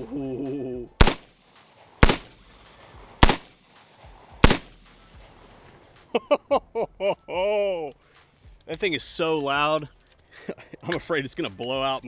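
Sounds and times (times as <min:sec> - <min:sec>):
rifle shots with echo: 0:01.0 - 0:05.6.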